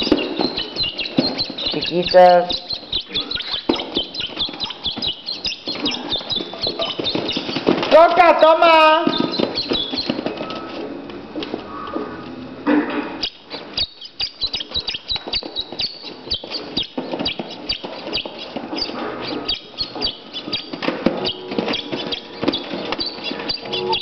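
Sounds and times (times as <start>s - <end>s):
puppies squeaking: 0.0s - 10.9s, 13.1s - 24.0s
paws clicking and scuffling: 0.0s - 24.0s.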